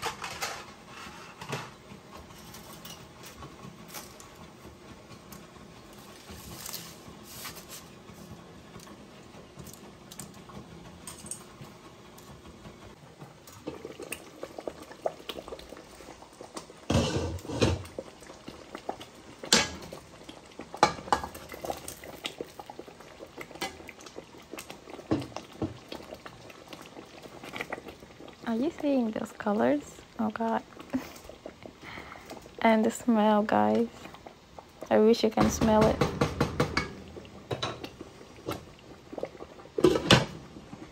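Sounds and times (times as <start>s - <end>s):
pot and utensils clinking: 0.0s - 4.3s, 11.0s - 11.6s, 39.8s - 40.4s
pots boiling: 0.0s - 40.9s.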